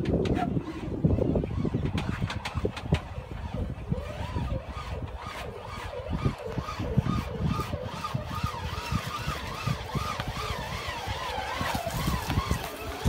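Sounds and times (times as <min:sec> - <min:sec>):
electric motors whining: 0:00.0 - 0:13.0.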